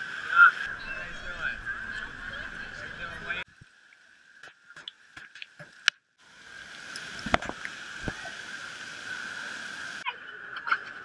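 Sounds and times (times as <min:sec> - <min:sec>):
rush of flowing water: 0:00.0 - 0:11.0
water dripping and splashing: 0:03.4 - 0:10.0
sharp water splash: 0:06.6 - 0:08.3.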